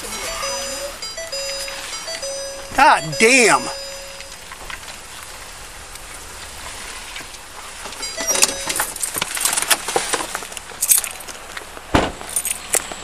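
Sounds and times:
keys and belt gear jangling: 10.8 - 11.3, 12.3 - 12.7.

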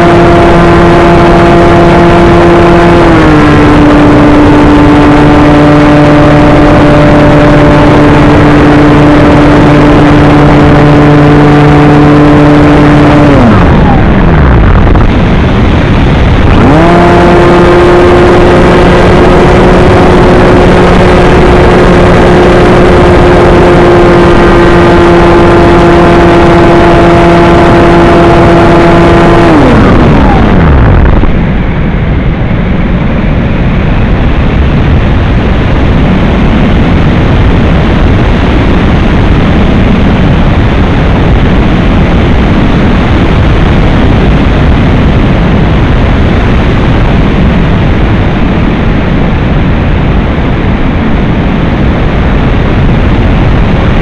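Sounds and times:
model aircraft motor whine: 0.0 - 31.5
wind rush on microphone: 0.0 - 54.0.

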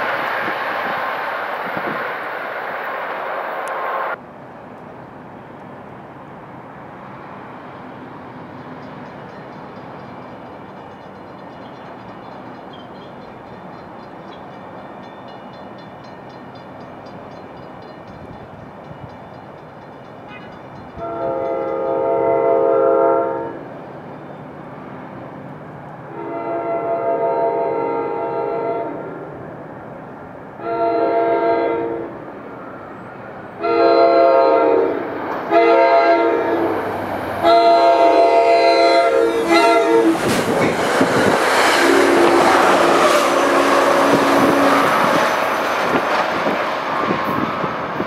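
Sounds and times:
train air horn: 20.3 - 23.7, 26.1 - 29.2, 30.6 - 32.2, 33.6 - 36.8, 37.4 - 40.4, 41.7 - 45.4.

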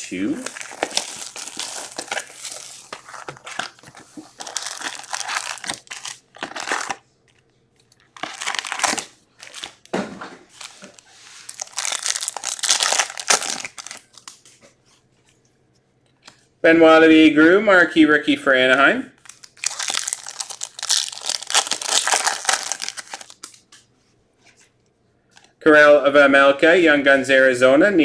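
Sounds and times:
plastic wrapping crinkling and tearing: 0.4 - 9.9, 10.5 - 14.4, 19.2 - 23.6.

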